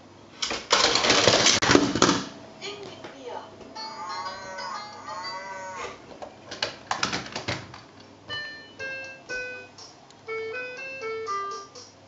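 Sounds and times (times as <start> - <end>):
plastic toy clicking and rattling: 0.7 - 1.6
electronic toy tune beeping: 8.3 - 11.9.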